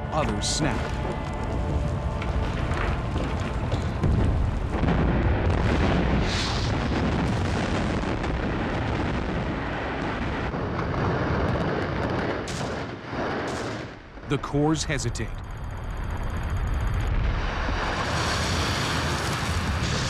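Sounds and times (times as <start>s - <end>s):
building collapsing rumble: 0.0s - 14.4s, 15.4s - 20.0s.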